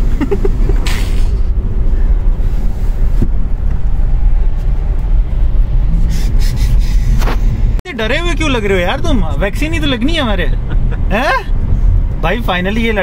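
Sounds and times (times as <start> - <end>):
car engine low rumble: 0.0 - 13.0
short hiss: 0.8 - 1.4.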